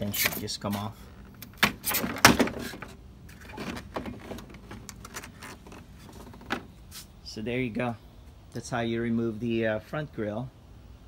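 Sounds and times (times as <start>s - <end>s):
plastic rattling and scraping: 1.1s - 6.8s.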